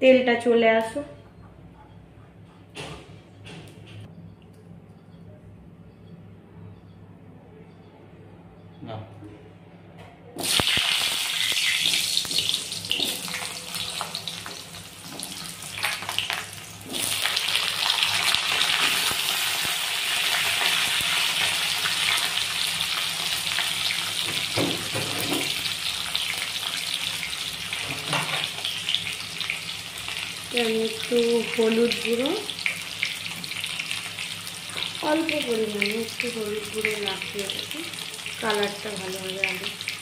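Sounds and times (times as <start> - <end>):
potatoes sizzling in hot oil: 10.4 - 40.0.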